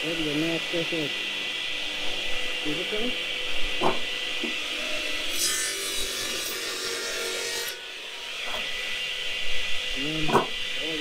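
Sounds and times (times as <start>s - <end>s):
circular saw cutting wood: 0.0s - 11.0s
saw motor whine: 0.0s - 11.0s.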